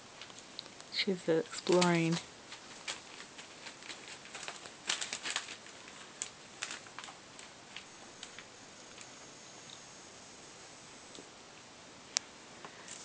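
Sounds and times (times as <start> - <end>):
puppy claws ticking on newspaper: 1.4 - 9.1.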